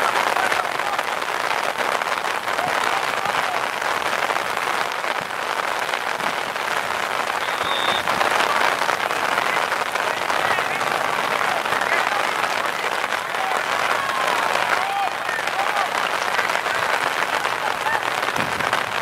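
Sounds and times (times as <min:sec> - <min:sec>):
rain hiss: 0:00.0 - 0:19.0
faint high whistle: 0:07.4 - 0:08.1.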